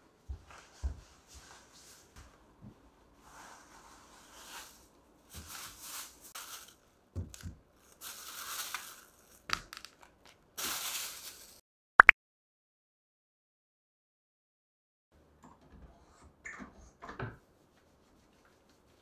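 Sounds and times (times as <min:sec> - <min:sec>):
plastic bags rustling: 0:05.3 - 0:11.6.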